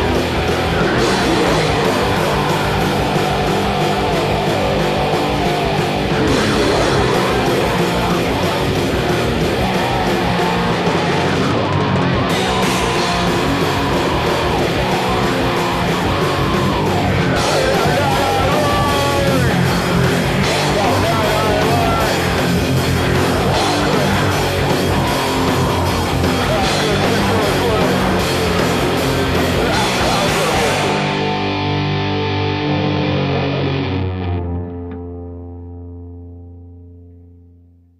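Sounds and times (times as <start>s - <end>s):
drum kit: 0.0s - 33.0s
electric guitars: 0.0s - 37.6s
bass guitar: 0.0s - 37.9s.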